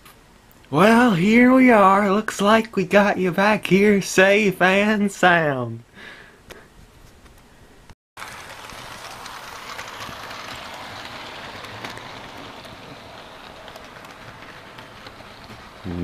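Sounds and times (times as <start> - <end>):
model train whirring on rails: 8.2 - 16.0.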